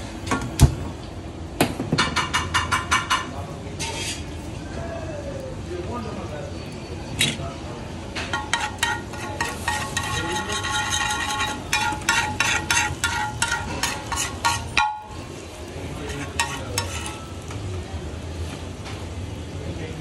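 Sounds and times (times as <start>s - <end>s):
street background noise: 0.0s - 20.0s
metal spatula clanking on griddle: 2.0s - 4.3s, 8.2s - 15.3s, 16.0s - 17.6s
frying sizzle: 5.4s - 20.0s.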